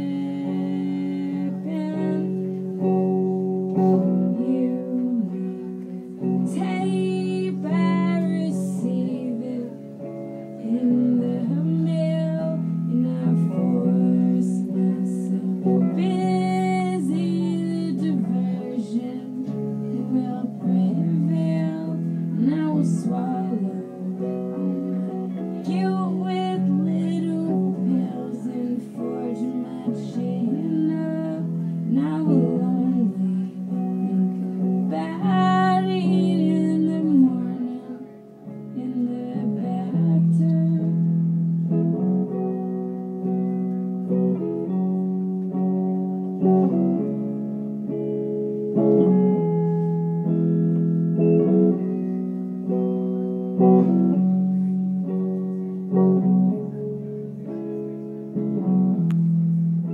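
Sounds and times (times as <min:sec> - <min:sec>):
person singing: 0:00.0 - 0:47.3
strummed guitar chords: 0:00.0 - 0:59.9.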